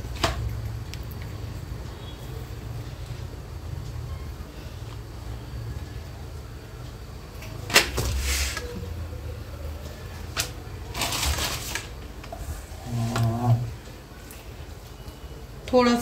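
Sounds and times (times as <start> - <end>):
wrappers rustling: 10.4 - 12.1.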